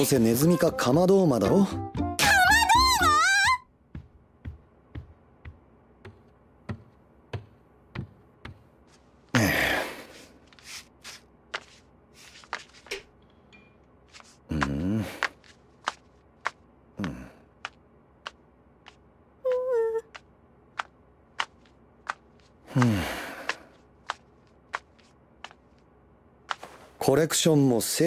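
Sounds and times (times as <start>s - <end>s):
footsteps in sandals: 10.0s - 13.2s, 14.0s - 27.1s.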